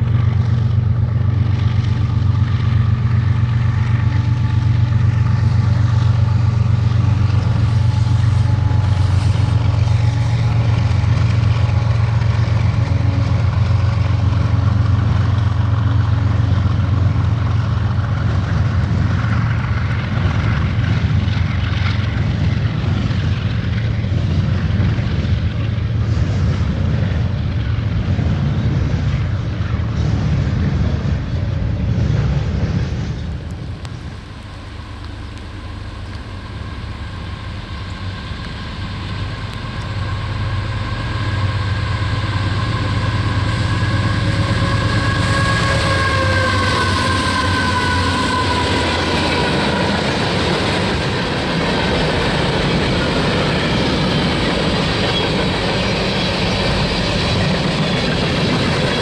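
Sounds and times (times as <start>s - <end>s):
diesel locomotive engine drone: 0.0s - 59.0s.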